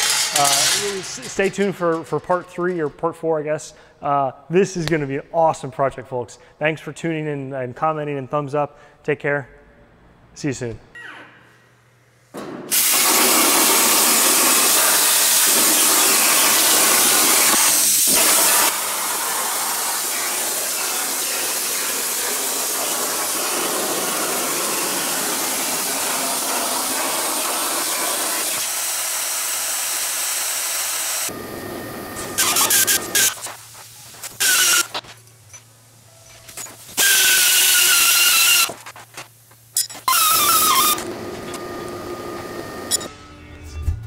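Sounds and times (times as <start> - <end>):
pneumatic hand tool bursts: 12.7 - 31.3, 32.2 - 33.6, 34.2 - 35.0, 36.6 - 38.9, 39.7 - 41.6, 42.2 - 43.1
plasma torch hissing: 12.7 - 35.0, 36.6 - 39.4.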